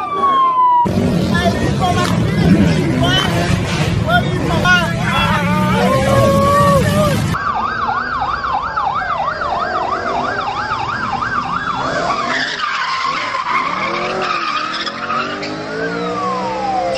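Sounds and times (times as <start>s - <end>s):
police siren yelping: 0.0s - 1.0s, 5.0s - 16.9s
car tyres squealing: 11.8s - 16.6s.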